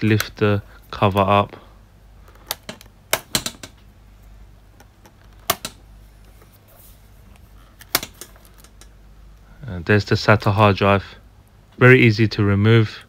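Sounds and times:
plastic clips snapping loose: 0:02.3 - 0:03.8, 0:04.8 - 0:05.8, 0:07.8 - 0:08.9.

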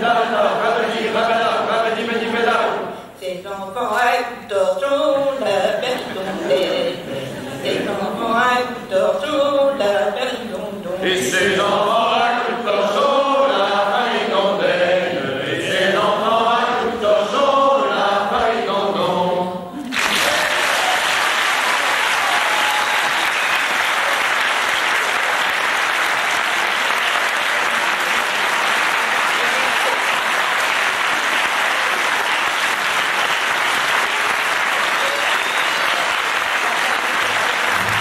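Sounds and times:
unaccompanied voices singing: 0:00.0 - 0:20.4
audience applause: 0:19.8 - 0:38.0.

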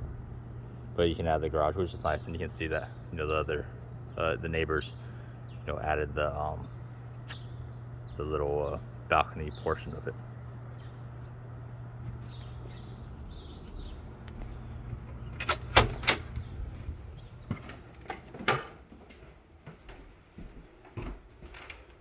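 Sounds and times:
low hum: 0:00.0 - 0:20.0
door clacking shut: 0:15.3 - 0:16.5.

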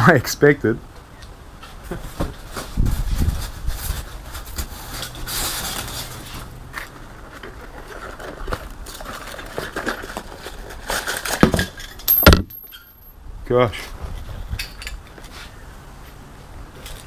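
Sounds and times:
packaging rustling: 0:04.0 - 0:11.4.

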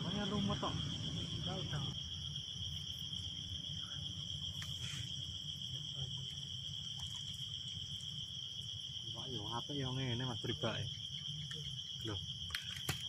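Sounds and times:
constant low rumble: 0:00.0 - 0:06.6
shrill insect chorus: 0:00.0 - 0:13.0.

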